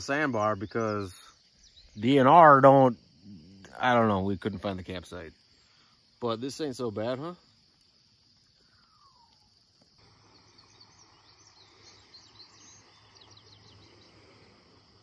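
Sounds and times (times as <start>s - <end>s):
bird chirps: 0.0s - 2.6s, 8.5s - 15.0s
insect drone: 0.0s - 15.0s.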